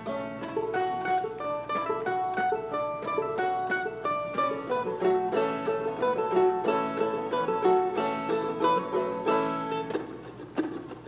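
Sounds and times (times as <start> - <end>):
string band plucking melody: 0.0 - 11.0.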